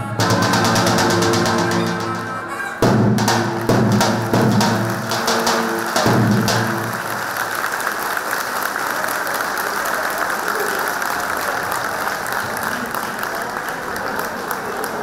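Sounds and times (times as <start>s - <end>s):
audience applauding: 3.2s - 15.0s.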